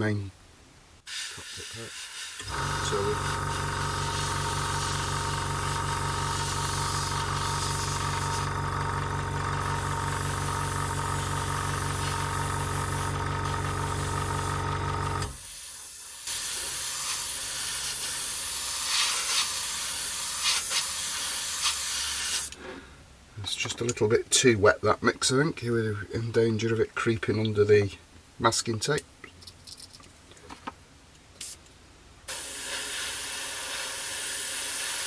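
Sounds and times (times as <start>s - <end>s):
airbrush spraying hiss: 1.0s - 8.5s, 9.6s - 14.6s, 15.3s - 22.6s, 32.3s - 35.0s
air compressor hum: 1.1s - 22.8s, 32.3s - 35.0s.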